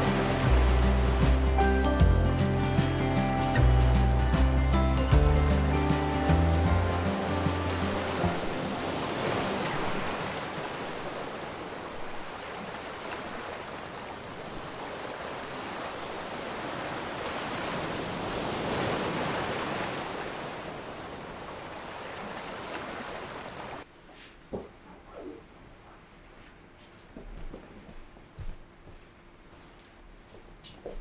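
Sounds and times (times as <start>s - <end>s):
sea surf: 0.0s - 23.9s
wind: 0.0s - 31.0s.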